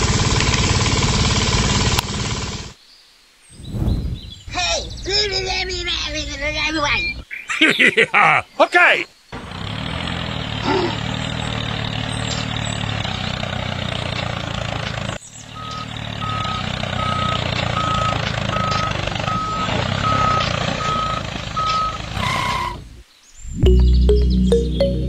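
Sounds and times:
tractor engine running: 0:00.0 - 0:02.8, 0:09.4 - 0:22.9
reversing alarm beeping: 0:15.5 - 0:22.0.

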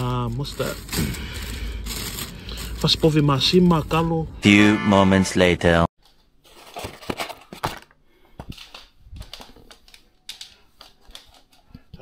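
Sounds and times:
food packaging being handled: 0:00.0 - 0:03.4.

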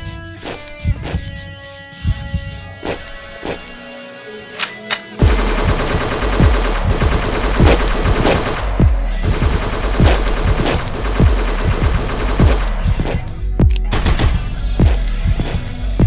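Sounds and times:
gunfire rattle through speakers: 0:05.0 - 0:14.5.

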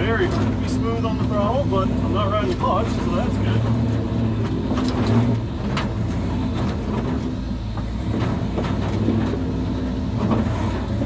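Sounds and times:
truck engine at low revs: 0:00.0 - 0:11.0
truck knocks and rattles: 0:02.5 - 0:11.0.

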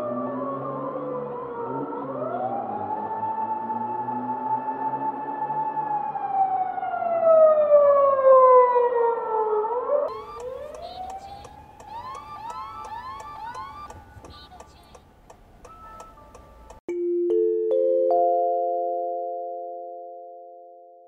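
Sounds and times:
police siren wailing: 0:00.0 - 0:14.9.

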